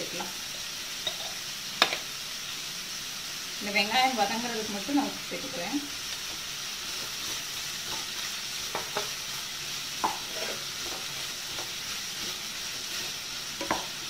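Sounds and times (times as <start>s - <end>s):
onions sizzling in hot oil: 0.0s - 14.0s
wooden spatula scraping a pot: 10.0s - 13.9s.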